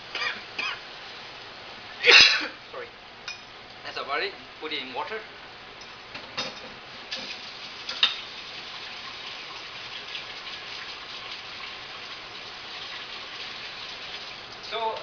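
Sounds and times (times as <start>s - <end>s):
food deep-frying in hot oil: 3.2s - 15.0s.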